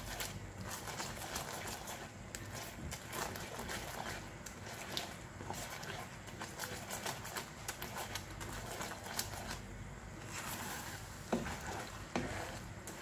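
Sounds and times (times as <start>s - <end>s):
thick mixture bubbling: 0.0s - 13.0s
spatula scraping and tapping a pan: 10.2s - 13.0s.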